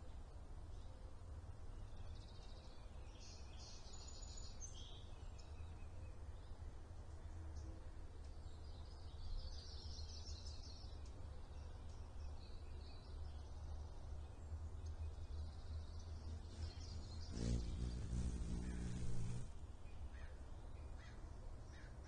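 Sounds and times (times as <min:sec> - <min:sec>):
faint bird chirps: 0:07.2 - 0:22.0
low outdoor rumble: 0:10.7 - 0:21.7
low buzzing hum: 0:11.8 - 0:20.0.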